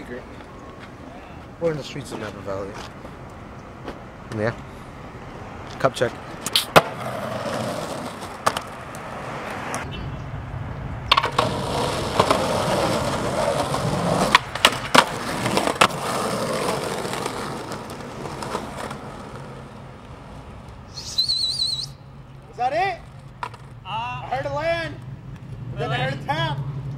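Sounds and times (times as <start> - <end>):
skateboard wheels rolling on concrete: 0.0 - 26.9
skateboard clacking on ground: 6.4 - 9.1, 11.1 - 20.8, 23.0 - 23.8.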